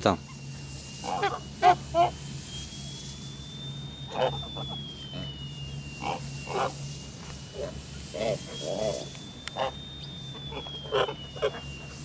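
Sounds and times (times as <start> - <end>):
steady low hum: 0.0 - 12.0
thin high whine: 0.0 - 12.0
geese honking: 1.0 - 2.1, 4.1 - 4.8, 9.6 - 9.8.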